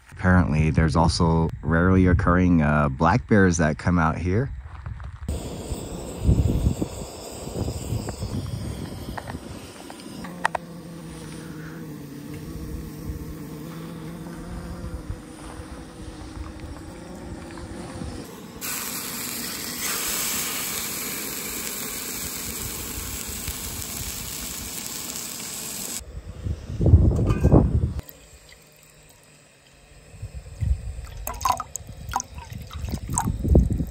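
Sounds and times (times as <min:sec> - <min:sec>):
gas burner rumble: 0:05.3 - 0:13.5, 0:16.2 - 0:28.0
steak searing hiss: 0:05.3 - 0:14.2, 0:17.4 - 0:26.0.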